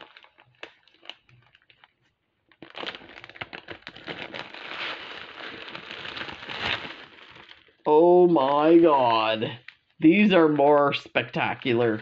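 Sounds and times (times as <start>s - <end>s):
plastic bag crinkling with beads: 0.0s - 7.8s.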